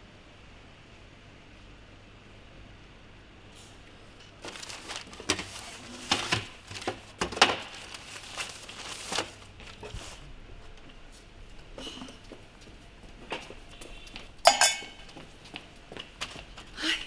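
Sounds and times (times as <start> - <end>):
paper crumpling and rustling: 4.4 - 10.3.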